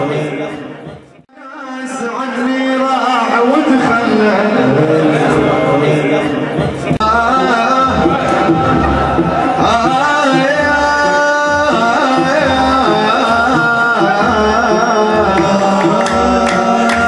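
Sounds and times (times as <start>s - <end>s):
man singing into microphone: 0.0s - 17.0s
steady drum beat: 6.6s - 17.0s.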